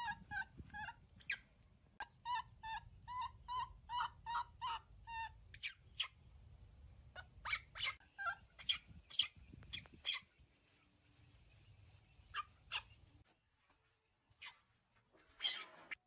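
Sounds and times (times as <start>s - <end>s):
high squeaks and chirps: 0.0s - 1.4s, 2.3s - 6.2s, 7.4s - 10.3s, 15.3s - 16.0s.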